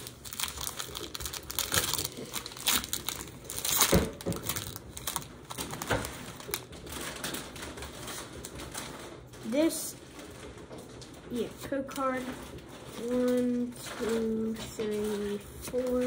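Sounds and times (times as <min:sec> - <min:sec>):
wrapper crinkling as torn open: 0:00.0 - 0:11.3.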